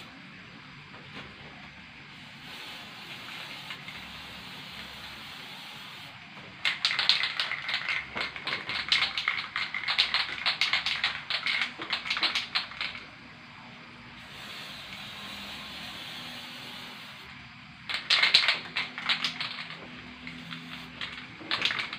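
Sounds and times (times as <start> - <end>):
spray can hissing: 2.2 - 6.1, 17.9 - 21.9
spray can ball rattling: 2.4 - 6.0, 6.6 - 13.1, 17.9 - 21.9.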